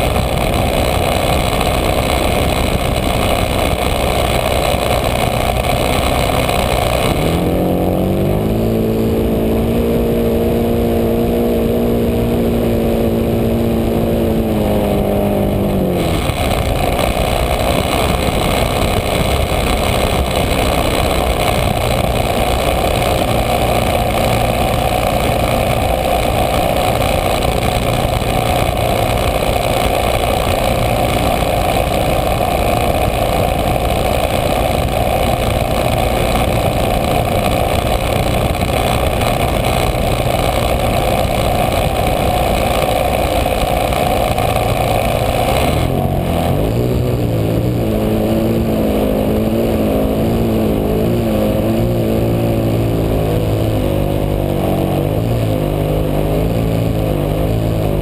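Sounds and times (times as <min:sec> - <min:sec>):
model airplane engine running: 0:00.0 - 0:09.7, 0:12.7 - 0:46.3.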